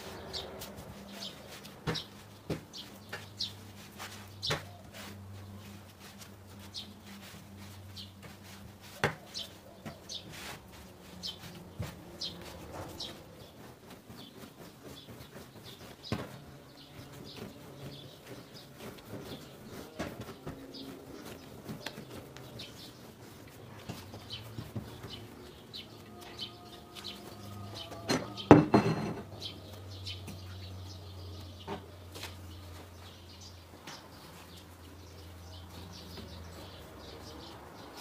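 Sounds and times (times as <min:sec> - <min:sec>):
hands kneading bread dough: 0:00.0 - 0:38.0
bird chirping: 0:09.2 - 0:38.0
knocks on wooden tabletop: 0:28.1 - 0:29.3.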